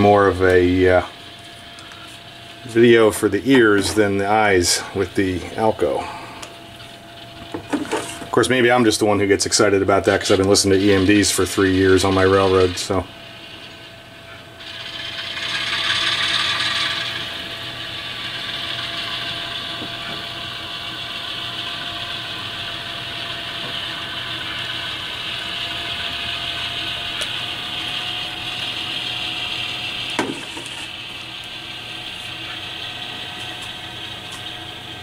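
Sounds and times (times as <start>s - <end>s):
model motor and gears whirring: 0.0s - 35.0s.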